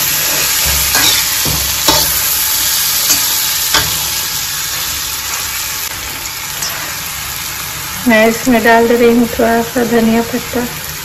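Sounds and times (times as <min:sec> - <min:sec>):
metal spatula scraping a pan: 0:00.0 - 0:05.0
chickpeas sizzling in a pan: 0:00.0 - 0:11.0.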